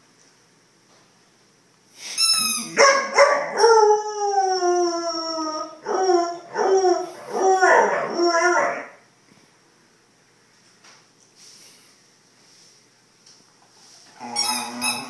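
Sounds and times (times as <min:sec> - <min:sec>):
puppy high-pitched cry: 0:02.2 - 0:03.9, 0:14.2 - 0:15.0
puppy howling: 0:02.6 - 0:09.0.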